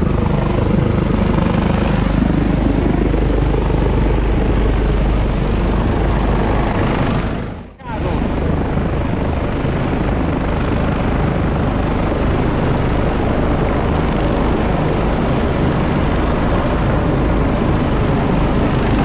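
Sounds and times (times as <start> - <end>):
helicopter hovering: 0.0 - 19.0.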